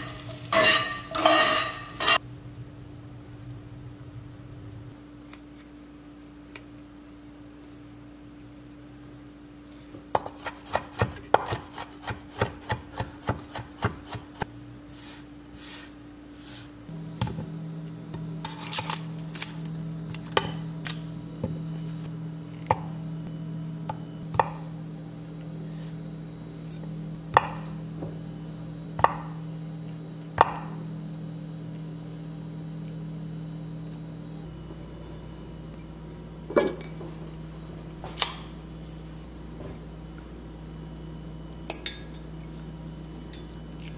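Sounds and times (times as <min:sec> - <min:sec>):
steady hum: 0:00.0 - 0:43.9
knife chopping herbs on wooden board: 0:10.2 - 0:14.3.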